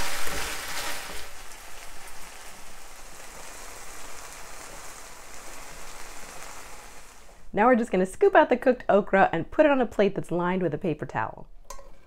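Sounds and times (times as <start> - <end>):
okra sizzling in a skillet: 0.0 - 7.5.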